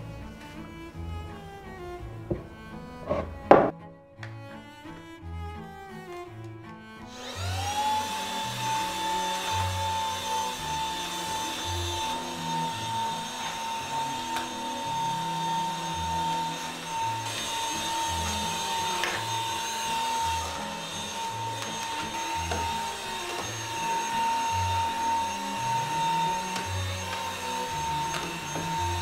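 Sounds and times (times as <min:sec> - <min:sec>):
background music: 0:00.0 - 0:29.0
vacuum cleaner motor whine: 0:07.1 - 0:29.0.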